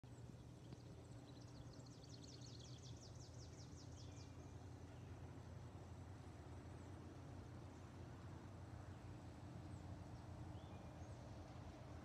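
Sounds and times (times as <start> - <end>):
songbird trill: 0.1 - 5.4, 8.8 - 11.7.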